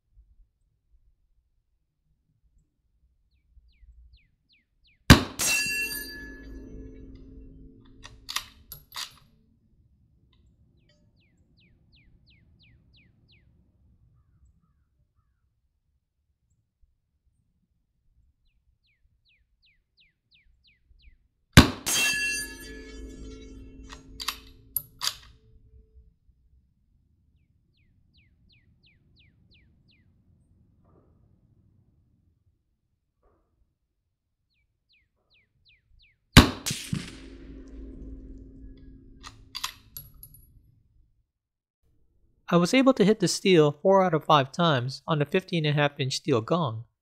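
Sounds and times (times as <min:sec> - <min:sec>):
rifle shot: 0:05.1 - 0:08.6, 0:21.6 - 0:25.2, 0:36.4 - 0:40.0
rifle bolt clacking: 0:08.0 - 0:09.2, 0:23.9 - 0:25.3
rifle bolt clacks: 0:08.0 - 0:09.2
bird chirping: 0:27.7 - 0:30.1.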